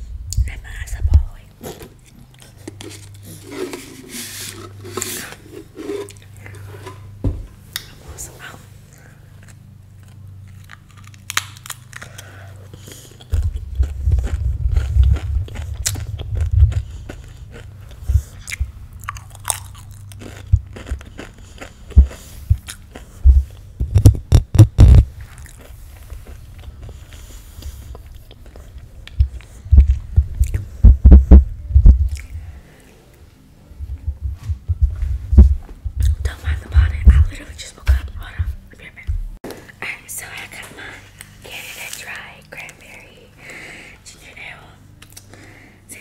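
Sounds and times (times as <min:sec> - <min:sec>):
crunching and chewing chip: 0:08.9 - 0:30.6.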